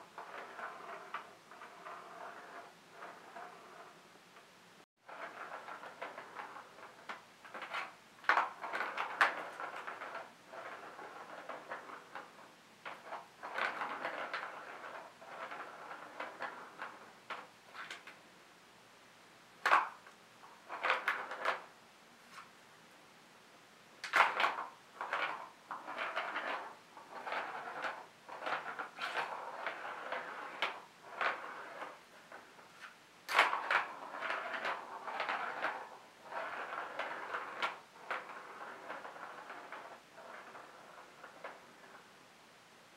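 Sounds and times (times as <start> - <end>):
plastic ball rattling around track: 5.1 - 18.2, 19.6 - 21.7, 24.0 - 42.2.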